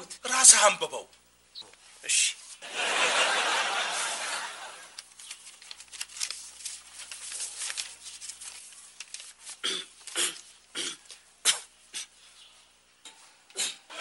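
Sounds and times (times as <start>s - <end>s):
paper crackling: 4.8s - 11.3s
paper rustling and crinkling: 4.9s - 11.2s.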